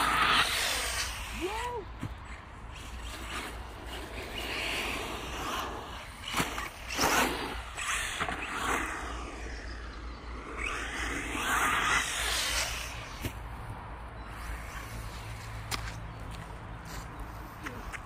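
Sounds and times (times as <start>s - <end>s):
rc car motor whine: 0.0s - 1.4s, 2.7s - 13.3s
tyres on dirt: 0.0s - 18.0s.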